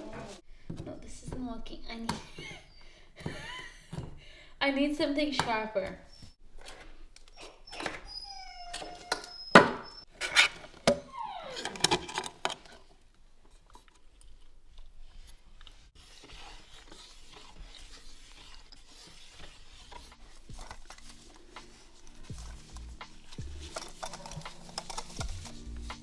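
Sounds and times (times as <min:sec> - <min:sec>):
faint rubbing: 0:15.0 - 0:26.0.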